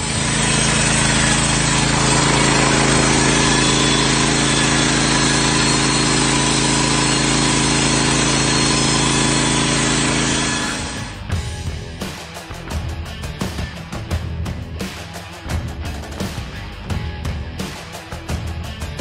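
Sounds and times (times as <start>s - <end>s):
band sawmill cutting timber: 0.0s - 11.3s.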